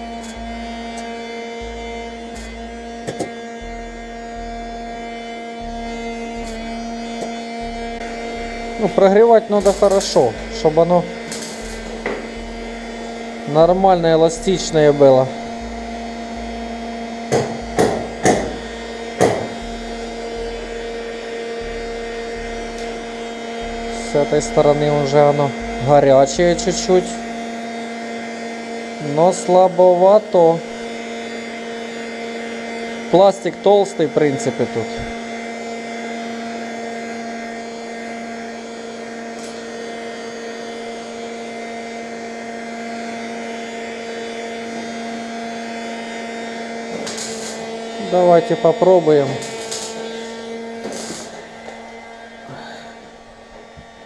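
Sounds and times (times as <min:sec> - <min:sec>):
heat gun humming: 0:00.0 - 0:54.0
sharp knocks: 0:17.3 - 0:18.6, 0:19.2 - 0:19.6.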